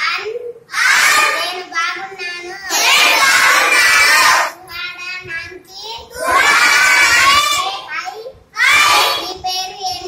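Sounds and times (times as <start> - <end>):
child speaking: 0.0 - 3.7, 4.5 - 10.0
children chanting in unison: 0.7 - 1.7, 2.4 - 4.6, 6.1 - 7.9, 8.6 - 9.4.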